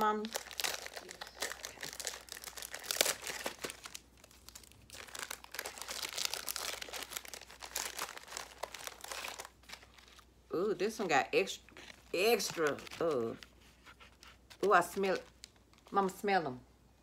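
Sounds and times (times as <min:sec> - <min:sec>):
plastic packaging crinkling: 0:00.0 - 0:16.2.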